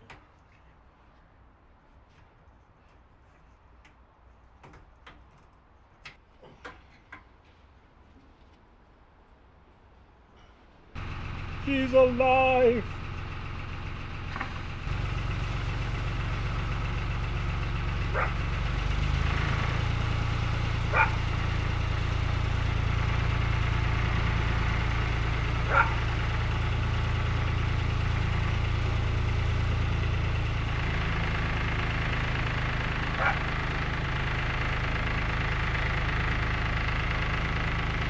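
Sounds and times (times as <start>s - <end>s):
boat engine running: 11.0s - 38.0s.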